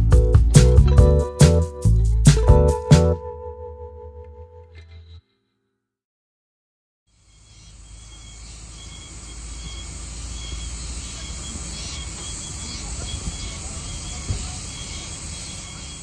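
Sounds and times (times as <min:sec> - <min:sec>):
cicadas singing: 0:07.1 - 0:16.0.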